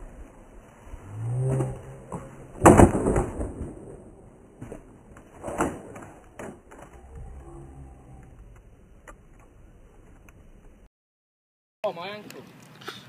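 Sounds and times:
skateboard slamming onto concrete: 0:02.1 - 0:06.8
skateboard clattering: 0:02.1 - 0:06.9.

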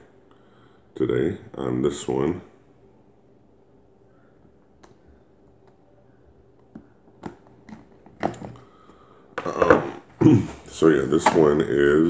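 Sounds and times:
case clattering: 0:07.2 - 0:08.6.

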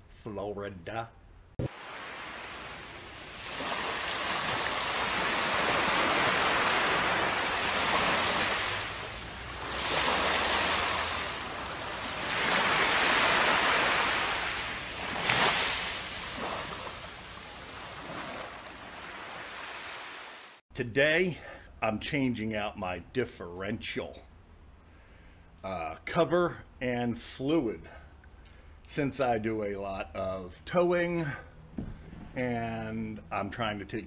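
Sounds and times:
ocean waves on sandy beach: 0:01.6 - 0:20.6.

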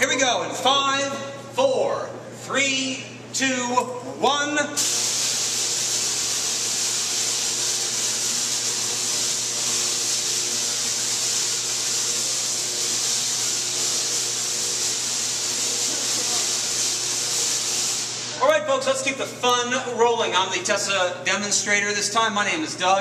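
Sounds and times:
tesla coil buzzing hiss: 0:04.8 - 0:18.5.

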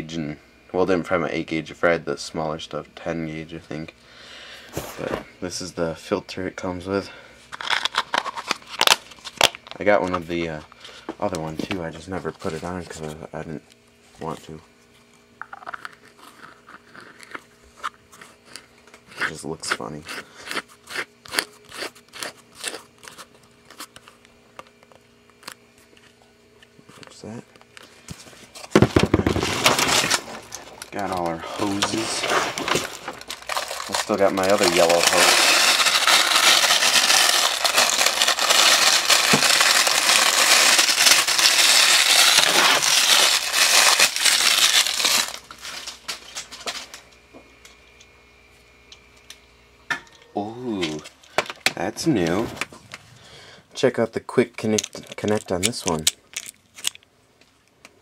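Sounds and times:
plastic packaging crinkling: 0:07.5 - 0:10.0, 0:27.9 - 0:47.0, 0:54.6 - 0:57.0.

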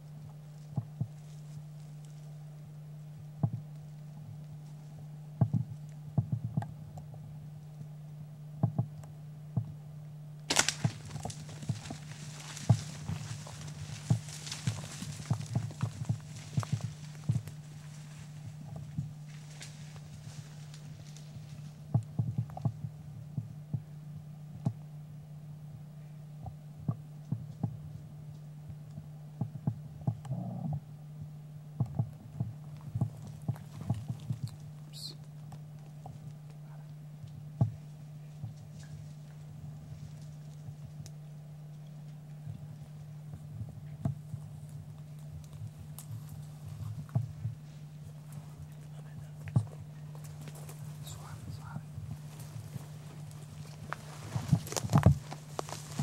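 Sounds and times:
steady low hum: 0:00.0 - 0:56.0
rustling hiss: 0:10.5 - 0:22.3, 0:44.3 - 0:56.0.

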